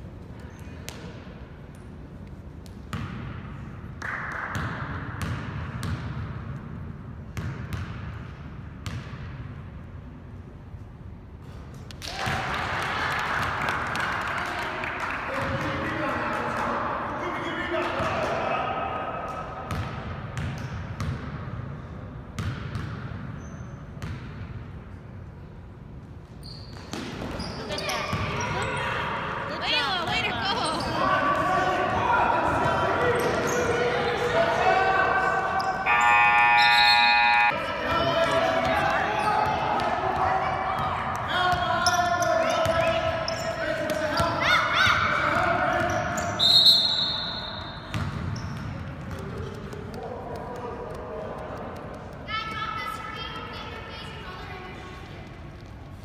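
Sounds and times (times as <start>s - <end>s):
basketball bouncing on gym floor: 2.7s - 3.5s, 4.3s - 6.7s, 7.3s - 9.5s, 19.7s - 21.5s, 22.4s - 23.4s, 24.0s - 24.6s, 26.7s - 28.7s, 47.8s - 49.9s.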